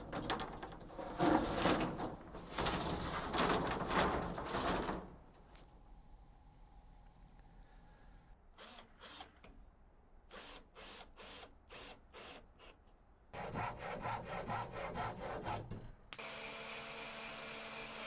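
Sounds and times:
cordless drill boring wood: 8.6s - 9.3s, 10.3s - 12.7s, 16.2s - 18.0s.

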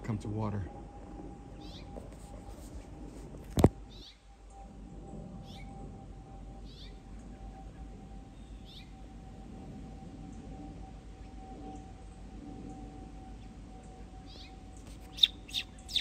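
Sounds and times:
faint steady hum: 0.0s - 16.0s
songbird alarm calls: 15.1s - 16.0s.

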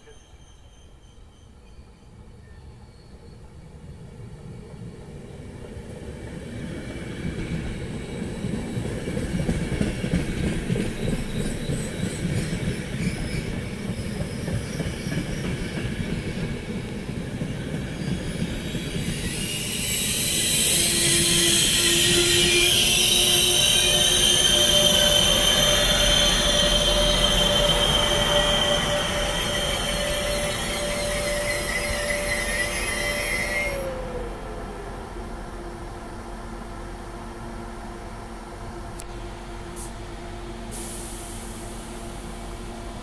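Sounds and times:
high squeal and hiss: 0.0s - 3.4s, 17.6s - 34.3s, 40.7s - 42.6s.

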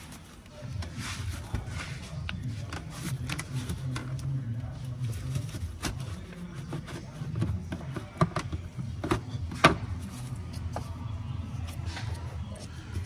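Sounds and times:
plastic parts clicking and knocking: 5.7s - 9.9s.

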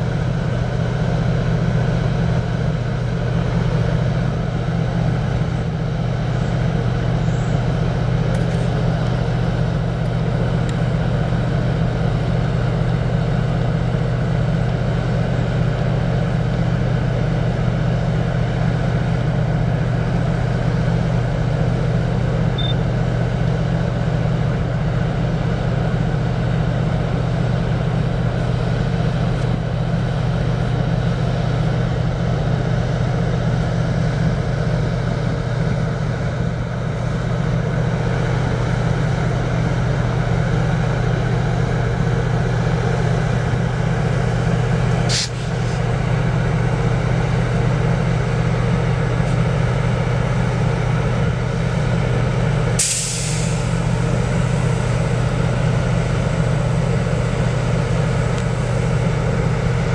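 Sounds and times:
low engine drone: 0.0s - 59.9s.

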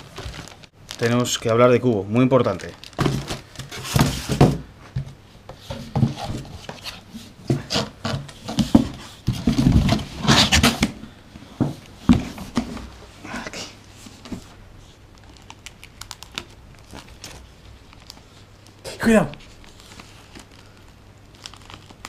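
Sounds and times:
foam and cardboard scraping: 3.0s - 4.6s, 5.6s - 11.0s.

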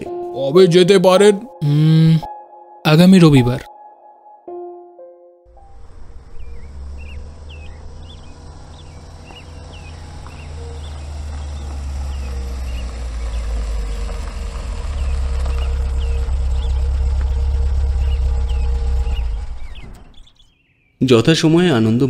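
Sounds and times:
deep low rumble: 5.5s - 20.3s
small birds chirping: 5.5s - 22.0s.

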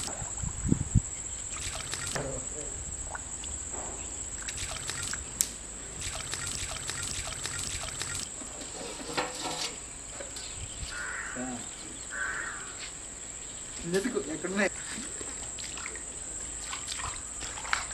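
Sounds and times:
high-pitched insect drone: 0.0s - 8.4s.

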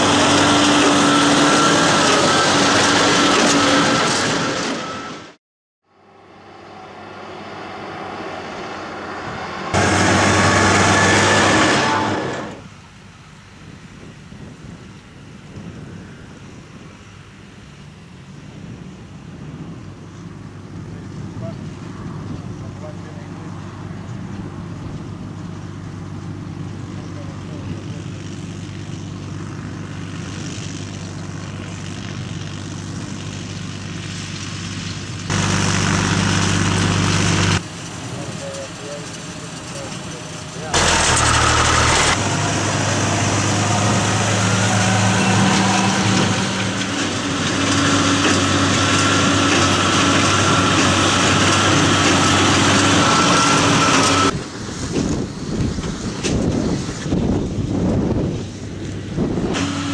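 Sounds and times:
rotary hay rake: 0.0s - 4.5s, 26.9s - 59.9s
tractor diesel engine running: 0.0s - 59.9s.

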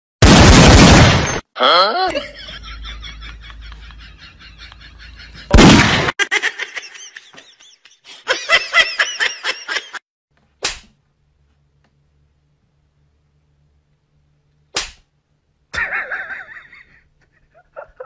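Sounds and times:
gunshot-like bang: 5.5s - 6.1s
brief pop: 10.6s - 11.0s, 14.8s - 15.0s.

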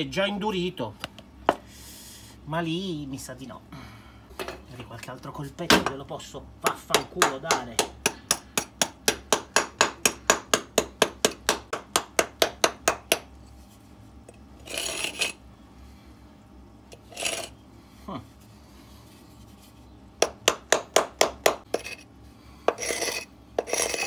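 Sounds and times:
small hammer tapping cement: 6.7s - 13.3s, 20.2s - 22.0s.

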